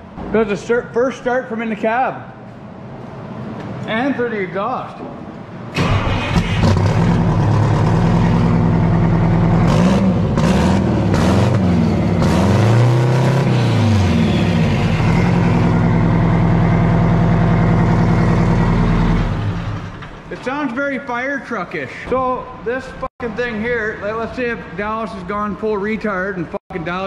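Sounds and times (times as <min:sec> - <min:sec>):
diesel engine revving: 0:05.7 - 0:20.3.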